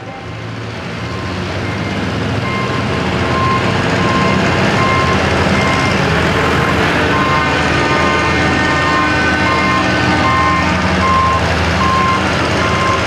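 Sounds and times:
tractor engine running under load: 0.0 - 13.0
short electronic beeps: 3.4 - 6.0.

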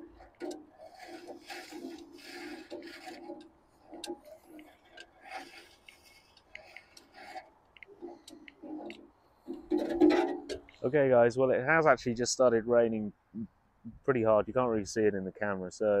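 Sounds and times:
scraping strokes with light clicks: 0.0 - 11.0
slight grinding: 0.0 - 11.0.

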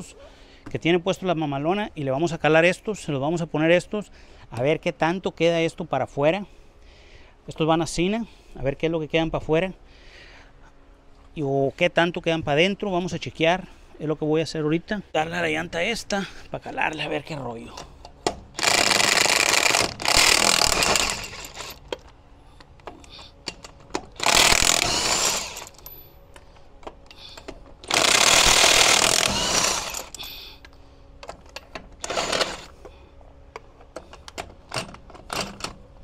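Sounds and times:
impact wrench hammering: 23.5 - 25.8, 27.8 - 30.2.

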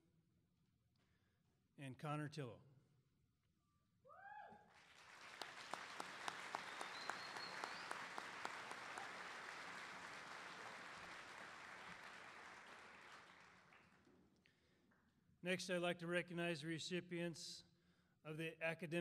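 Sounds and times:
audience applauding: 4.7 - 14.1.

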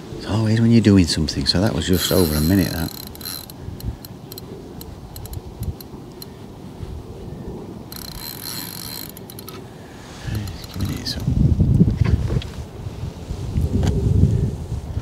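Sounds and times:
fishing reel clicking: 1.8 - 6.3, 7.9 - 9.6, 10.3 - 11.2
reel rasping buzz: 1.8 - 6.3, 7.9 - 11.2.

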